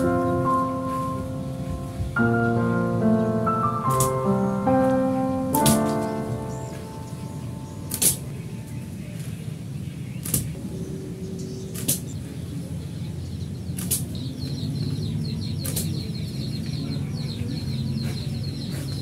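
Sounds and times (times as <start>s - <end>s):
bow string snapping: 5.6s - 6.1s, 7.9s - 8.2s
low hum: 10.6s - 13.6s.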